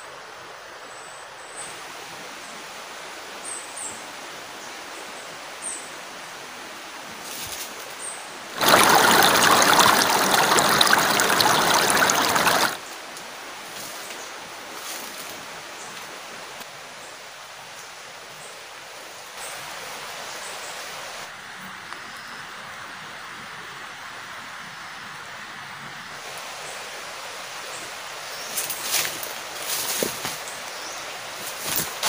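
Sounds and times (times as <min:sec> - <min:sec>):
stream rushing over rocks: 0:08.5 - 0:12.9
quiet forest background: 0:26.2 - 0:32.0.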